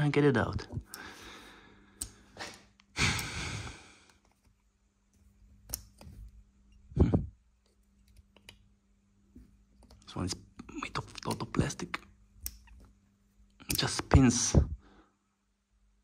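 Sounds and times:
person sighing: 2.4s - 4.1s, 6.9s - 7.4s.

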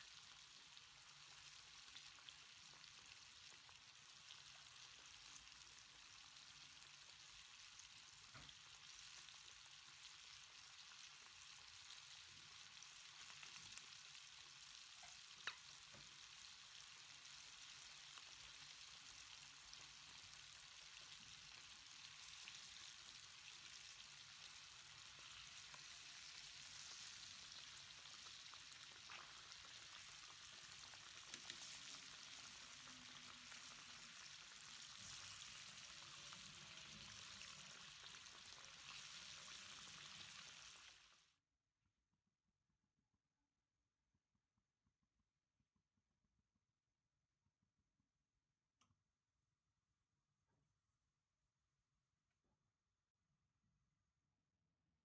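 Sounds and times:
chicken frying in oil: 0.0s - 41.4s.

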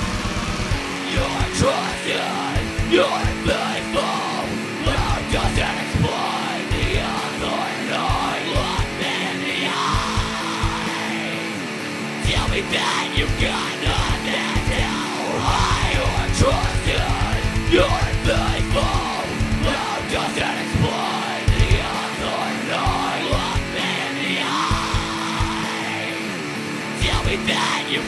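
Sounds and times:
heavy rock band: 0.0s - 28.0s
yelled vocals: 0.0s - 28.0s
double-kick drum run: 2.6s - 3.5s, 10.0s - 10.8s, 12.3s - 12.7s, 15.5s - 20.1s, 21.5s - 21.9s, 23.4s - 23.8s, 24.7s - 25.6s.

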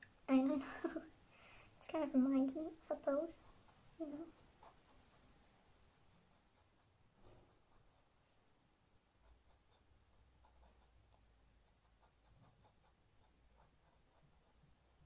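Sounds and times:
pen nib scratching paper: 2.7s - 8.4s, 9.2s - 15.0s.

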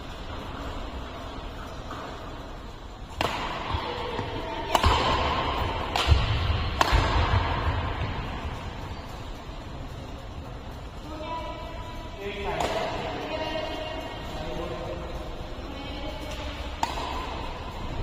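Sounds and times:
racket striking shuttlecock: 3.1s - 8.2s, 12.5s - 13.1s, 16.2s - 17.9s.

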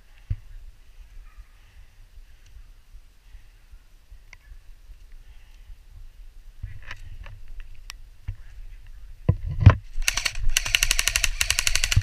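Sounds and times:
airsoft gun firing full auto: 10.0s - 12.0s
scattered clicks: 10.0s - 12.0s.

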